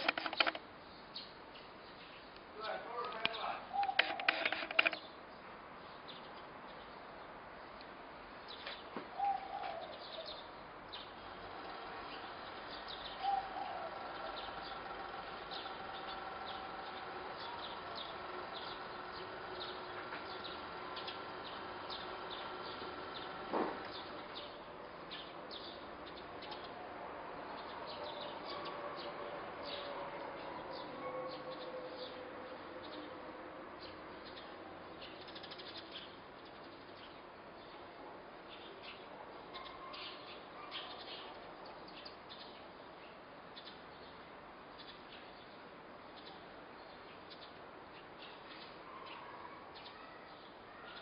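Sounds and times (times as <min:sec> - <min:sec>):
sharp click: 0:00.0 - 0:00.6, 0:03.0 - 0:05.0
small birds chirping: 0:00.0 - 0:33.2, 0:33.8 - 0:51.0
low cooing calls: 0:03.6 - 0:05.0, 0:09.1 - 0:10.5, 0:11.6 - 0:24.5.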